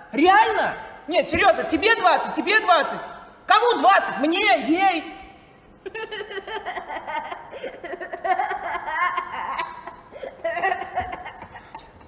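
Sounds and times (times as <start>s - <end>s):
person's voice: 0.1s - 5.3s
person laughing: 5.8s - 12.0s.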